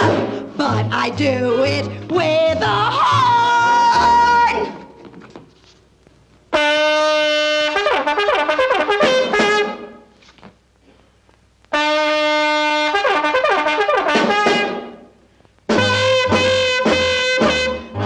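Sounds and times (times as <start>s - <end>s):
trumpet playing: 6.5s - 10.2s, 11.7s - 18.0s.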